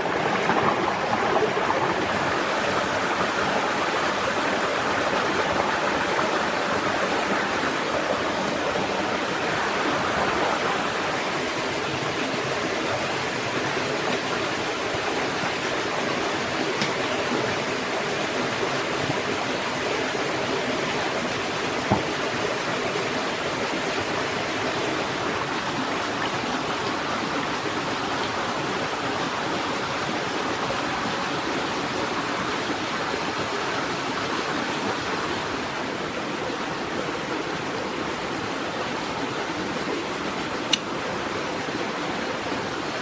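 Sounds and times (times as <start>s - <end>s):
stream running over rocks: 0.0s - 43.0s
sharp click: 40.7s - 40.9s.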